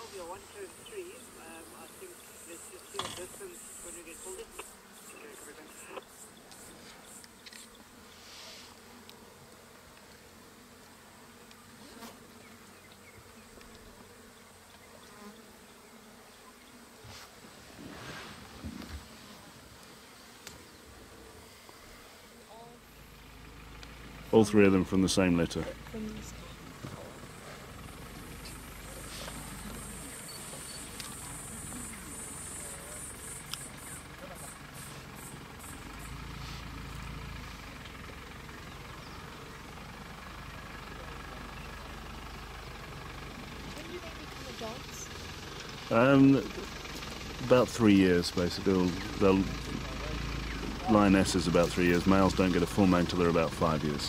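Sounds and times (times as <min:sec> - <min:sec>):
flies buzzing: 0:00.0 - 0:54.0
vehicle engine idling: 0:22.6 - 0:54.0.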